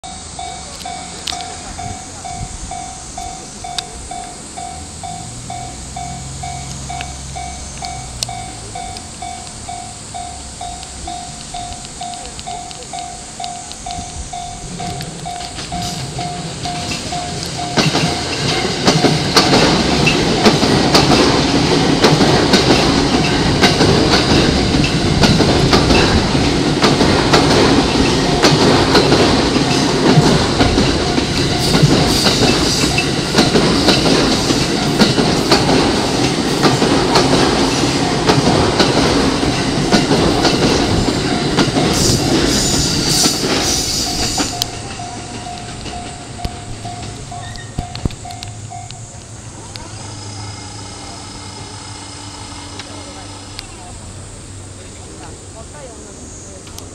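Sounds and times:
train wheels clattering over rail joints: 0.2 - 53.8
train wheels squealing: 27.8 - 36.8, 39.4 - 53.9.

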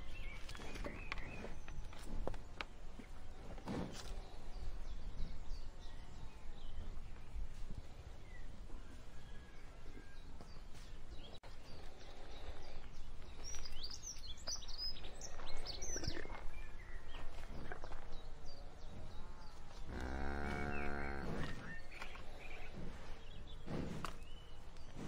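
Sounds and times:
small birds chirping: 0.0 - 25.0
cattle chewing grass: 14.4 - 25.0
cow mooing: 19.9 - 21.6.

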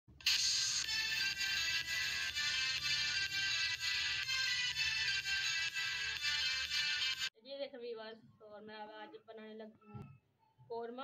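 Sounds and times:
bright intro music with beat: 0.2 - 7.3.

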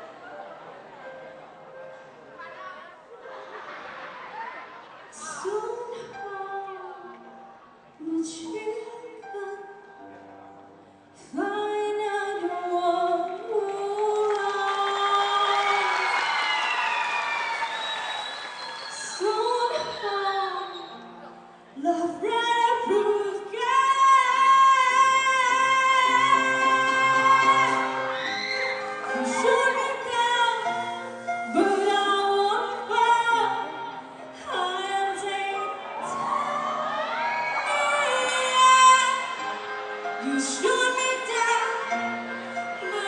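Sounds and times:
musical accompaniment: 0.0 - 43.0
woman singing into microphone: 5.2 - 7.3, 8.0 - 9.9, 11.2 - 15.9, 18.9 - 21.0, 21.8 - 28.1, 29.0 - 39.5, 40.2 - 42.0, 42.8 - 43.0.

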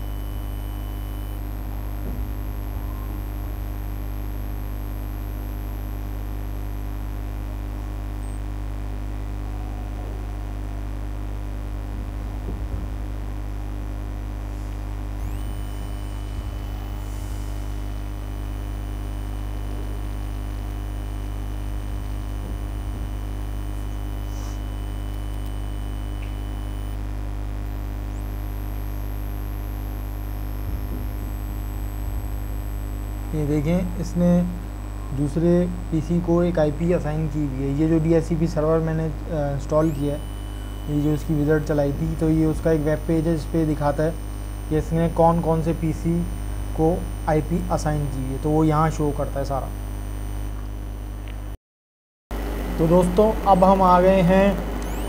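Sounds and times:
faint high-pitched tones: 0.0 - 6.2, 15.1 - 27.0, 27.8 - 50.8, 52.4 - 55.0
electrical mains hum: 0.0 - 51.6, 52.3 - 55.0.

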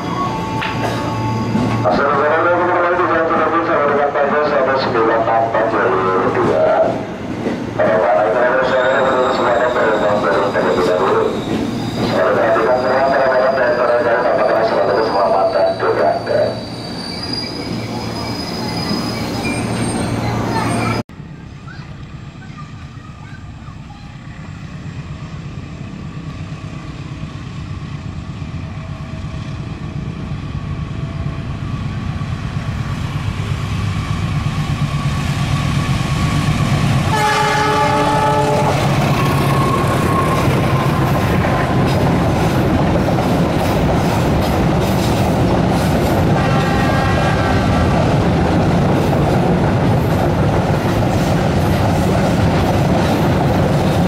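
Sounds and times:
diesel locomotive engine: 0.0 - 54.0
locomotive horn: 37.1 - 41.9, 46.3 - 47.9.

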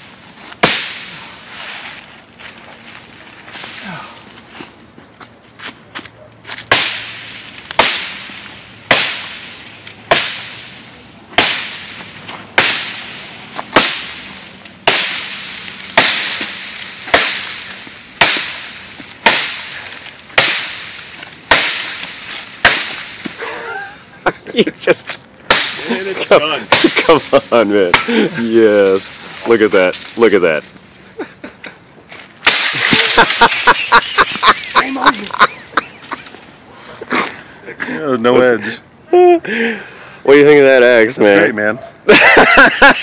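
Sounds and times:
axe chopping tree trunk: 0.6 - 1.2, 6.5 - 23.4, 25.4 - 28.5, 32.4 - 35.2.

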